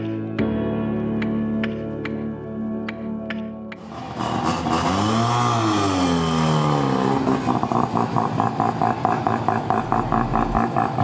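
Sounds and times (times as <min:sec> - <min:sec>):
cars driving off: 0:03.8 - 0:11.0
sports car engine revving: 0:03.8 - 0:11.0.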